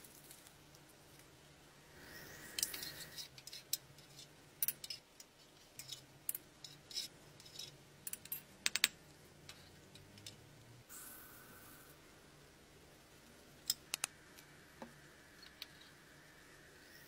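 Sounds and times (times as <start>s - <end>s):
faint steady hum: 0.0s - 17.0s
metal spoon scraping in pot: 2.0s - 5.0s.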